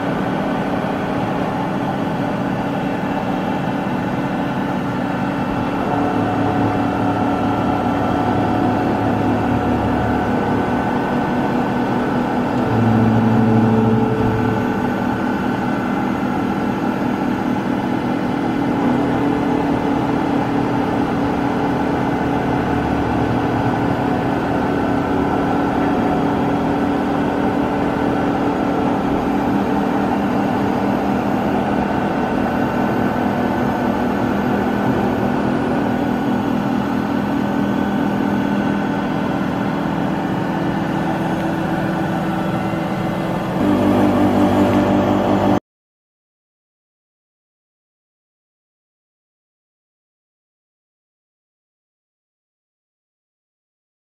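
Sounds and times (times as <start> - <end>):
loud low machine hum: 0.0 - 45.6
milling machine hum with whining tones: 0.0 - 45.6.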